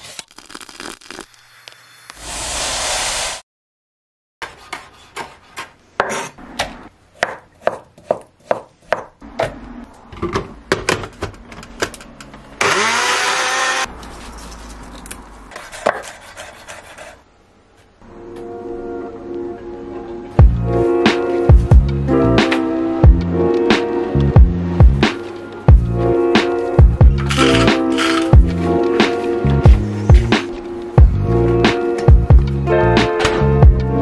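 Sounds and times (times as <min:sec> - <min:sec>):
knife chopping on wooden board: 0:07.2 - 0:09.2
electric blender whirring: 0:12.6 - 0:13.9.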